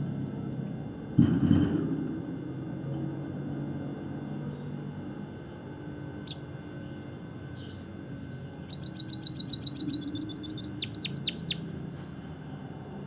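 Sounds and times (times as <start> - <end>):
bird singing with trills: 6.2 - 11.7.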